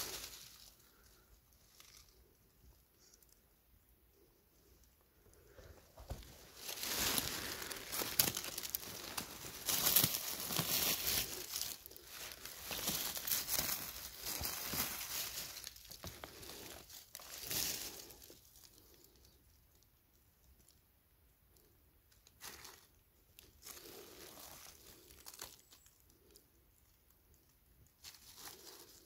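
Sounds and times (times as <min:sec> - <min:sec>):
dry leaves rustling and crackling: 0:00.0 - 0:03.4, 0:05.4 - 0:19.8, 0:22.2 - 0:26.4, 0:27.3 - 0:29.0.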